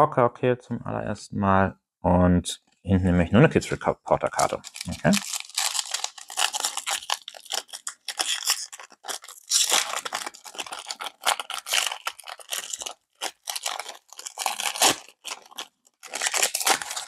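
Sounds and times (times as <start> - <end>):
plastic wrapper crinkling and tearing: 4.4 - 17.0.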